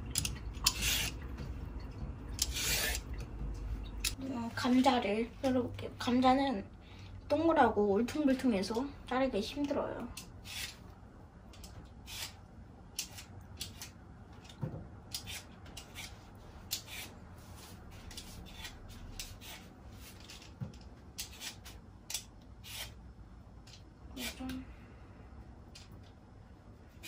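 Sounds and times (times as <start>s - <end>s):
knife slicing potato: 15.1s - 17.2s, 22.6s - 23.0s.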